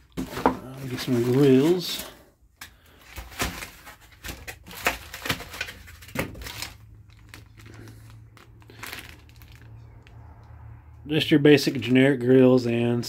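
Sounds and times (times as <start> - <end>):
plastic wrap crinkling: 0.0 - 2.2, 2.8 - 10.3.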